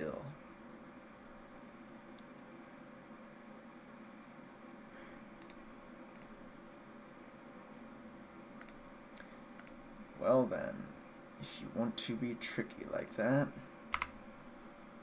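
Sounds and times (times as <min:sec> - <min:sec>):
faint room hum: 0:00.0 - 0:15.0
computer mouse clicking: 0:05.4 - 0:06.4, 0:08.6 - 0:09.8, 0:13.9 - 0:14.2.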